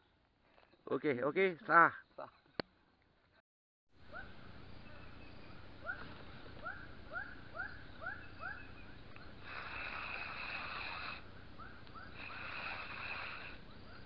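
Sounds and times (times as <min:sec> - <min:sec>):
animal chirping: 0:04.1 - 0:14.0
animal hissing: 0:09.2 - 0:11.3, 0:12.0 - 0:14.0.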